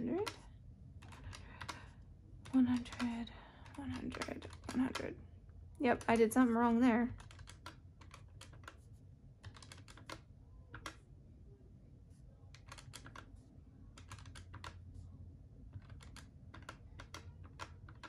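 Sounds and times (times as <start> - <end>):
calculator keys tapping: 0.0 - 5.2, 7.1 - 11.0, 12.5 - 14.8, 15.7 - 18.0.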